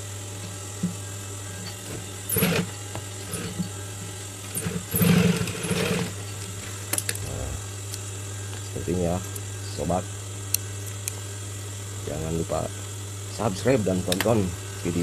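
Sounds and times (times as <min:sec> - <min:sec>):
steady low hum: 0:00.0 - 0:15.0
sewing machine stitching: 0:02.3 - 0:03.6, 0:04.6 - 0:06.2.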